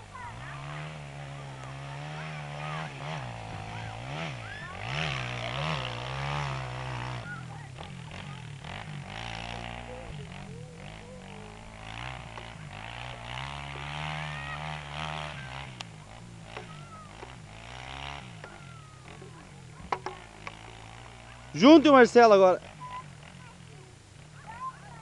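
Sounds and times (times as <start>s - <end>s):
dirt bike engine revving: 0.0s - 25.0s
rear wheel spinning in dirt: 0.0s - 25.0s.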